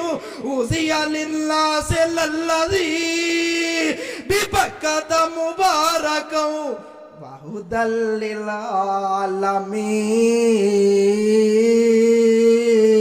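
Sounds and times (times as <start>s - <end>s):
man chanting melodic recitation: 0.0s - 13.0s.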